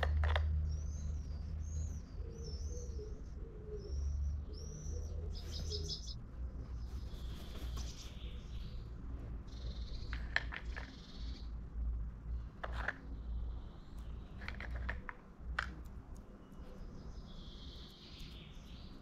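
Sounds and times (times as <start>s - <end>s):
small birds chirping: 0.0s - 19.0s.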